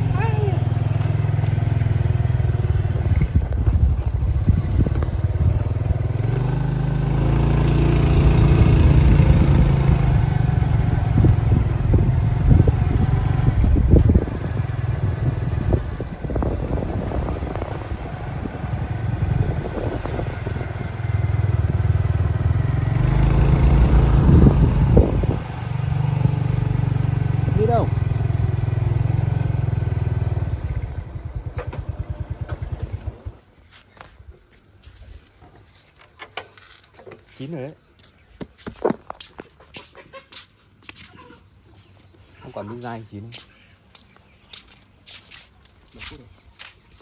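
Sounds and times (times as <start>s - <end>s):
motorbike running on dirt track: 0.0s - 33.6s.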